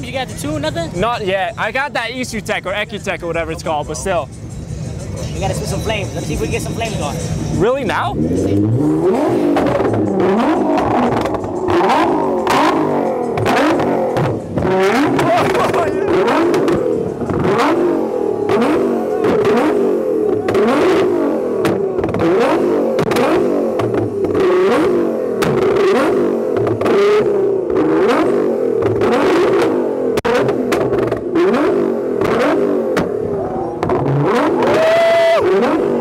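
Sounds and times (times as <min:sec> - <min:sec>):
car engine revving: 0:00.0 - 0:36.0
exhaust pops and bangs: 0:09.3 - 0:17.8, 0:18.5 - 0:34.8.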